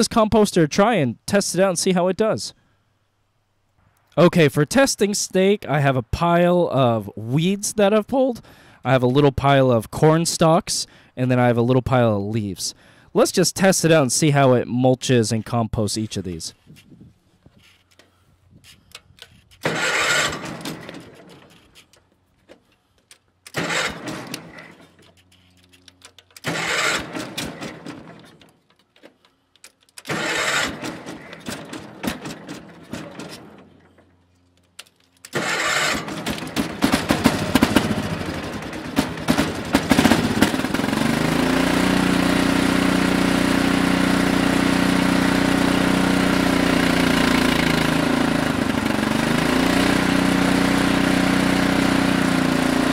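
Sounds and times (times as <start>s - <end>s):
electric starter cranking engine: 18.9s - 22.0s, 23.4s - 52.9s
single-cylinder engine running: 19.6s - 21.6s, 23.4s - 28.8s, 30.0s - 34.6s, 35.2s - 52.9s.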